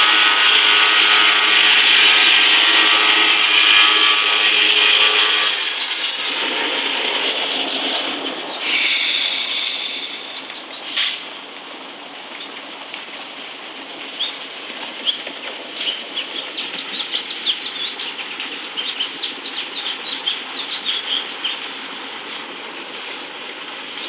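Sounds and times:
birds chirping: 7.2 - 11.5, 12.1 - 23.3.

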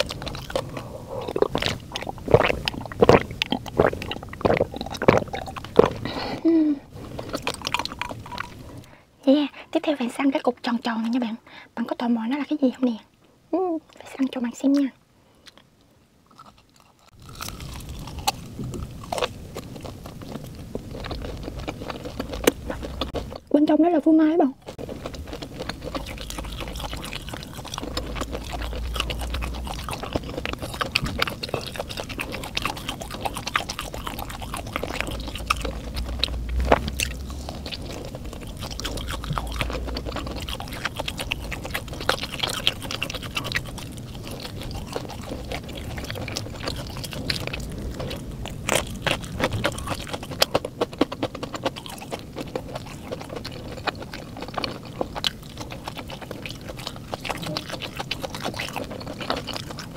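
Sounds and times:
chewing with wet mouth clicks: 0.0 - 6.1, 7.1 - 8.9, 16.3 - 23.5, 24.6 - 59.9.

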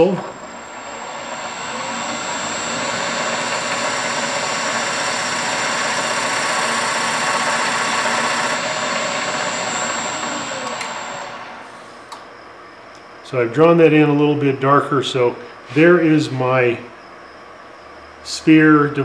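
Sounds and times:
wood lathe whining: 0.0 - 12.0.

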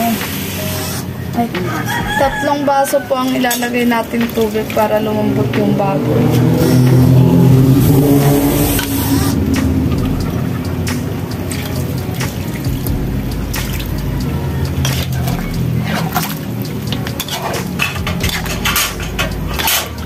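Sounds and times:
metal ladle scraping a wok: 14.8 - 16.3, 17.0 - 20.0.

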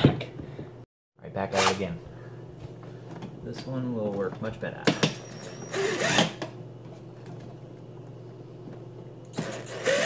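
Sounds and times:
cordless drill whirring: 5.2 - 6.4, 9.3 - 10.0.

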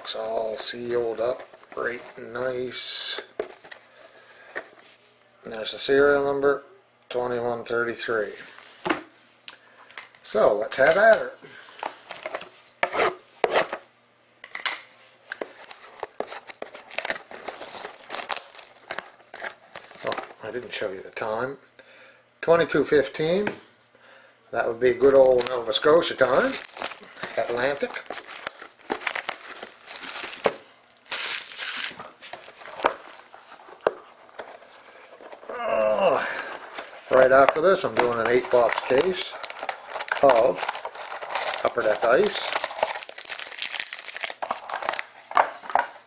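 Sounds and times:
plastic shrink-wrap tearing and crinkling: 15.4 - 20.2, 25.0 - 45.8.

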